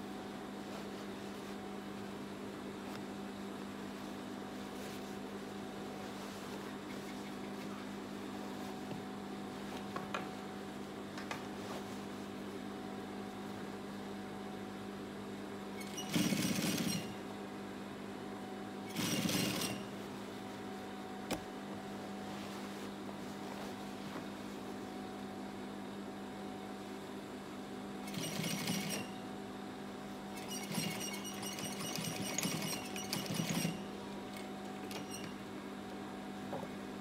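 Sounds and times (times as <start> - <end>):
sewing machine motor humming: 15.8 - 17.2, 18.9 - 19.9, 28.1 - 29.2, 30.4 - 35.3
sewing machine stitching: 15.8 - 17.2, 18.9 - 19.9, 28.1 - 29.2, 30.4 - 33.9.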